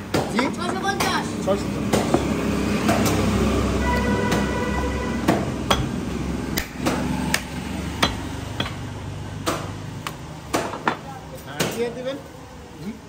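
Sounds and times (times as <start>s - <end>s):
knife striking chopping block: 5.2s - 6.0s, 6.6s - 9.7s.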